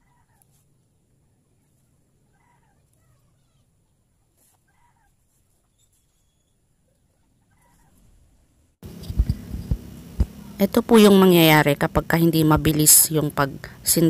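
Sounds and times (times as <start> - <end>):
loud low hum: 8.8 - 13.9.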